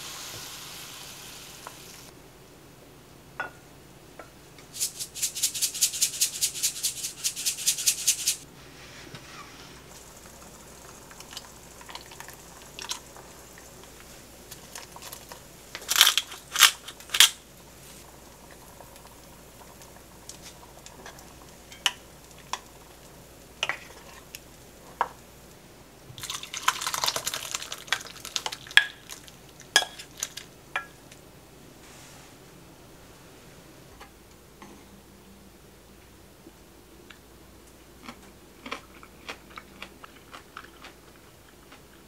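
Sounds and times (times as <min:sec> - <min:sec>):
utensils clinking on cookware: 0:29.8 - 0:30.1.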